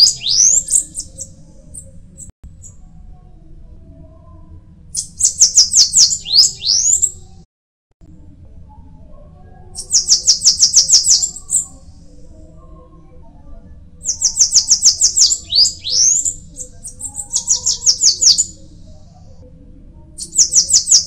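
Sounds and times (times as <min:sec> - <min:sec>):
bird singing high thin notes: 0:00.0 - 0:01.9, 0:14.1 - 0:18.5.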